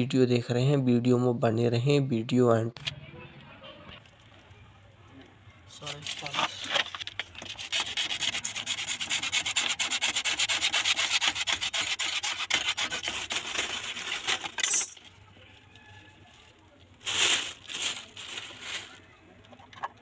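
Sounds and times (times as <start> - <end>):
hacksaw sawing through plastic pipe: 7.4 - 14.7.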